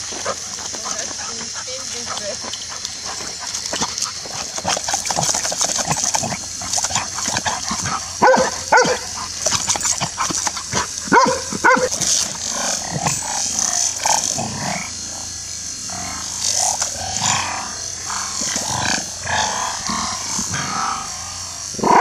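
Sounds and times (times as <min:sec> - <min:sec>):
hose water spraying: 0:00.0 - 0:22.0
dog barking: 0:08.2 - 0:09.4, 0:10.8 - 0:12.0.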